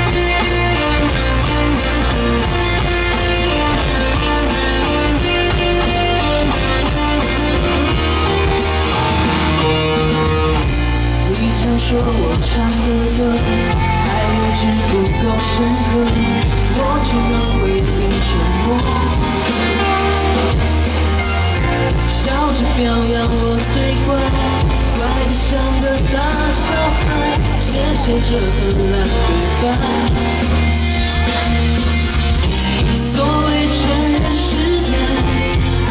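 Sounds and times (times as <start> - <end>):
drums: 0.0 - 35.9
electric guitar: 0.0 - 35.9
woman singing into microphone: 11.2 - 20.7, 21.9 - 30.5, 32.8 - 35.9.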